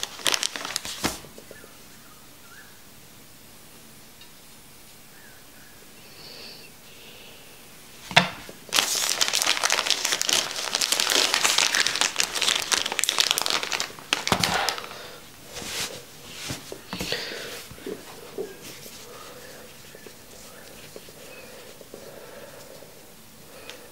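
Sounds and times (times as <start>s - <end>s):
packaging bag crinkling: 0.0s - 1.5s, 8.4s - 22.0s.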